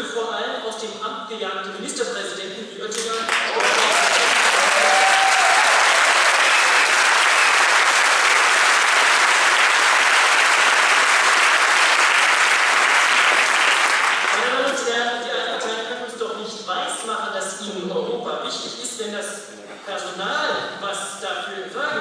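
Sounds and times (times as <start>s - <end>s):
audience applauding: 3.3s - 14.7s.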